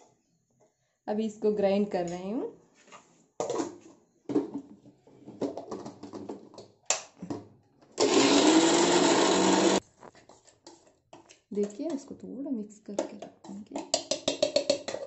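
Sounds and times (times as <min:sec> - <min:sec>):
mixer grinder motor running: 0:08.0 - 0:09.8.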